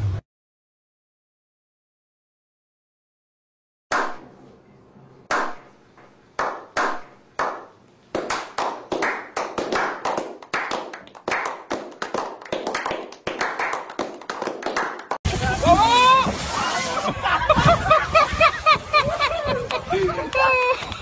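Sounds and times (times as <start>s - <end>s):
men clapping: 6.4s - 15.2s, 19.5s - 21.0s.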